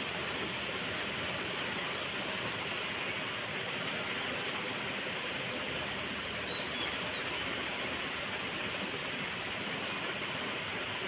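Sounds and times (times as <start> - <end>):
rain on concrete: 0.0 - 11.0.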